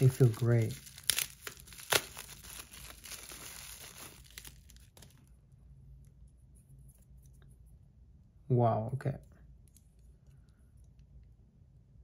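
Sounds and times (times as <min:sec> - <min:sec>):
plastic bag crinkling: 0:00.0 - 0:05.3.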